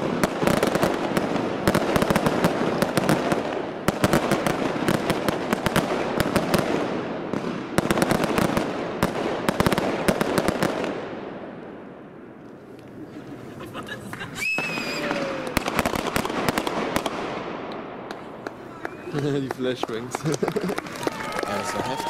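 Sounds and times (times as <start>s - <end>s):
fireworks crackling: 0.0s - 22.0s
firework shells bursting: 14.4s - 20.0s.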